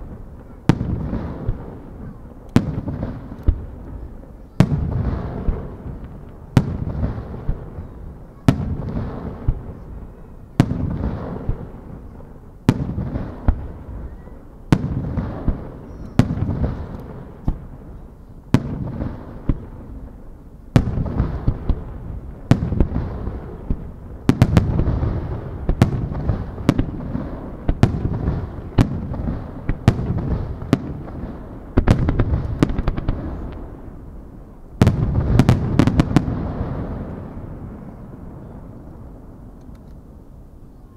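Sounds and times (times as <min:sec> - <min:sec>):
sharp firework cracks: 0:00.0 - 0:04.0, 0:20.7 - 0:34.2, 0:34.8 - 0:37.6
firework shells booming: 0:20.8 - 0:34.1, 0:34.8 - 0:38.4.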